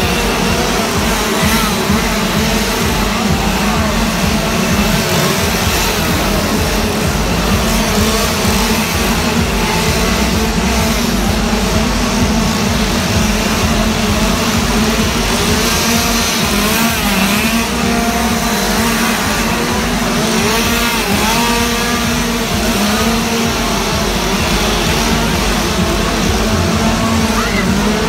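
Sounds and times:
chainsaw engine revving: 0.0s - 28.0s.

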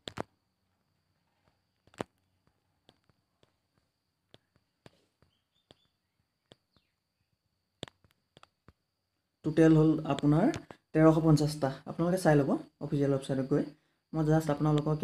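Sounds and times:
faint clicks and ticks: 0.0s - 7.0s, 7.8s - 9.0s
low background hiss: 8.8s - 15.0s.

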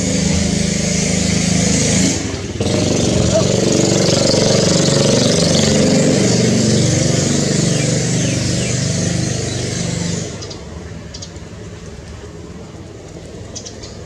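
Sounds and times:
vehicle engine running: 0.0s - 10.5s.

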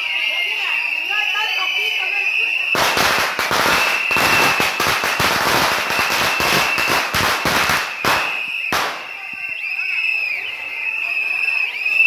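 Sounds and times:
firecrackers crackling: 0.1s - 12.0s
firecracker bangs: 2.7s - 9.4s.

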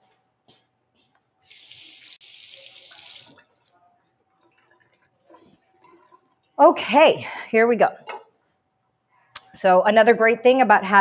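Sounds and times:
water tap running: 1.4s - 3.5s.

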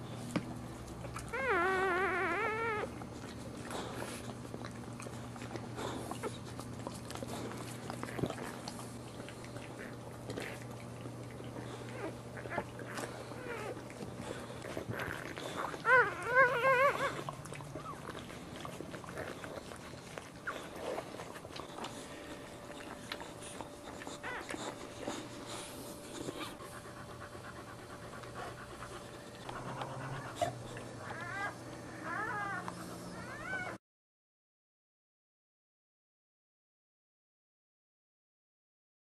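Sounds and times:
puppies crying in high squeals: 1.3s - 3.0s, 14.9s - 18.1s, 31.0s - 33.8s.

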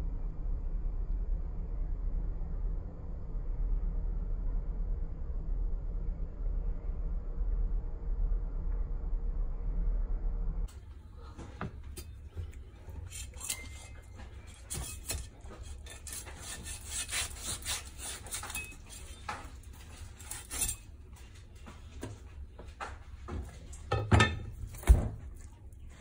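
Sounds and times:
low hum: 0.0s - 17.9s
knife scraping fish scales: 12.0s - 20.9s.

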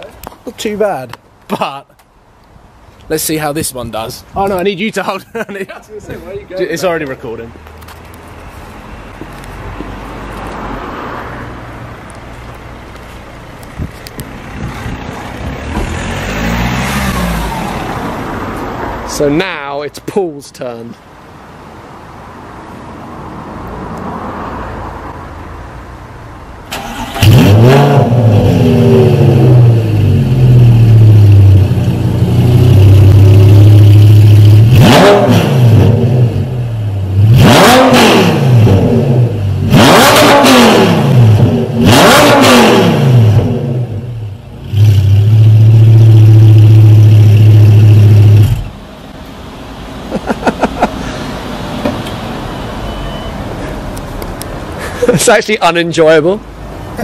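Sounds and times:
sports car engine revving: 26.8s - 48.7s.

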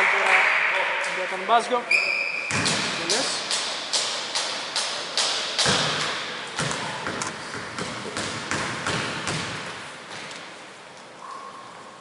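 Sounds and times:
basketball bouncing on hardwood floor: 5.6s - 6.0s, 6.6s - 10.3s.

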